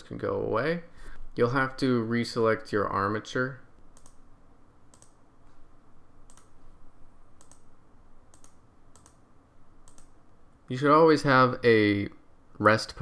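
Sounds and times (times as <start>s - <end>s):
faint steady hum: 0.0s - 13.0s
computer mouse clicking: 3.8s - 4.2s, 4.9s - 5.2s, 6.2s - 6.6s, 7.4s - 7.7s, 8.3s - 9.2s, 9.8s - 10.2s.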